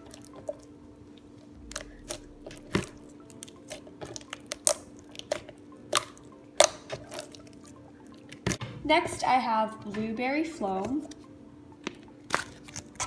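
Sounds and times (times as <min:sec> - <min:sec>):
faint steady hum: 0:00.0 - 0:06.6.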